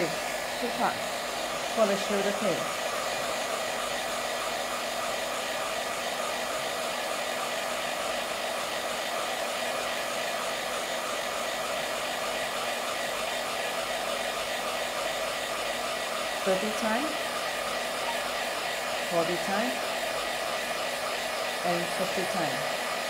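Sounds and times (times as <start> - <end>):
handheld wand fan whirring: 0.0 - 23.0.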